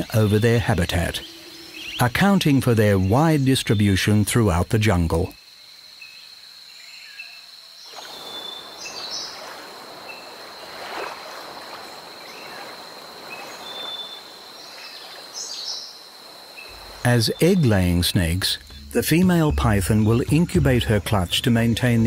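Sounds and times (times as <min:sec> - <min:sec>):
bird chirps: 0:00.0 - 0:03.8
high insect drone: 0:00.0 - 0:22.0
rushing water-like hiss: 0:07.9 - 0:17.4.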